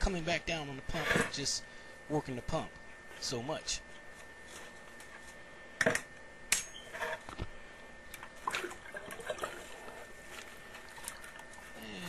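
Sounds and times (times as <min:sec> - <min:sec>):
water sloshing and splashing: 0:08.1 - 0:11.8.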